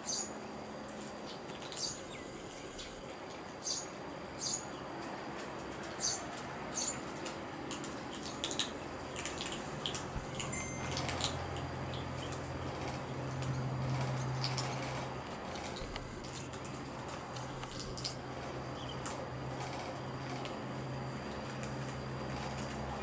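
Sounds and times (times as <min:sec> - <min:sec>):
low steady hum: 0:00.0 - 0:23.0
kittens crunching dry kibble: 0:07.1 - 0:22.9.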